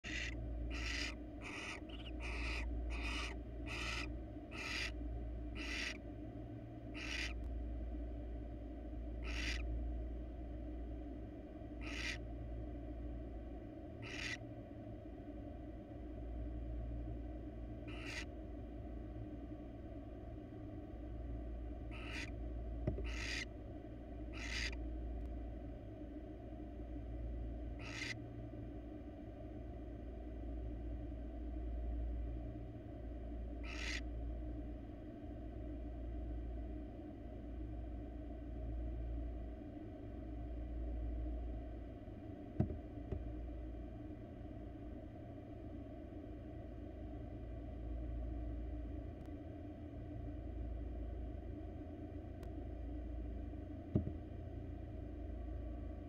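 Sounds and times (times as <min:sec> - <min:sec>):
barn owl hissing calls: 0:00.0 - 0:06.0, 0:06.9 - 0:07.5, 0:09.2 - 0:09.7, 0:11.7 - 0:12.3, 0:14.0 - 0:14.5, 0:17.8 - 0:18.3, 0:21.8 - 0:22.4, 0:23.0 - 0:23.6, 0:24.2 - 0:24.8, 0:27.7 - 0:28.3, 0:33.5 - 0:34.1
steady low hum: 0:00.0 - 0:56.0.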